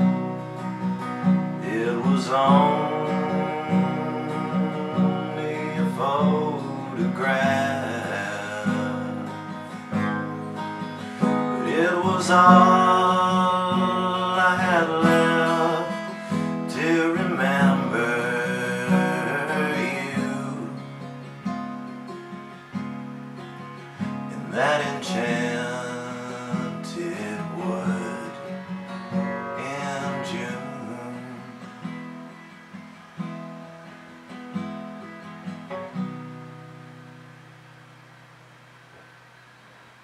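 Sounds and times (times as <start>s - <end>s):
acoustic guitar strummed: 0.0s - 40.0s
man singing: 1.6s - 10.4s, 11.0s - 21.2s, 24.3s - 31.8s.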